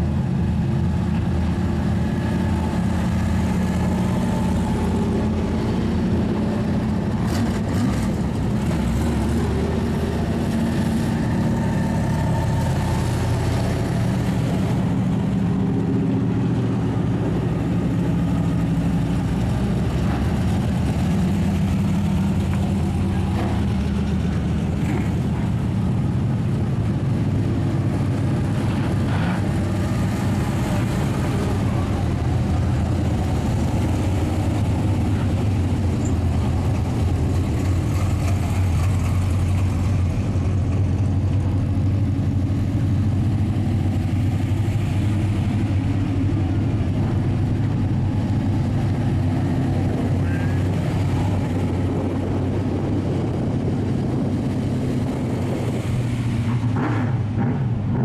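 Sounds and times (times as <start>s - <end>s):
race car engines at low revs: 0.0s - 58.0s.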